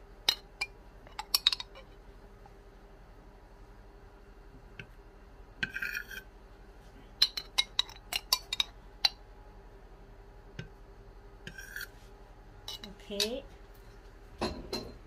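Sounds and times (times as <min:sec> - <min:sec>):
spoon scraping plate: 0:05.6 - 0:06.3, 0:11.5 - 0:12.0.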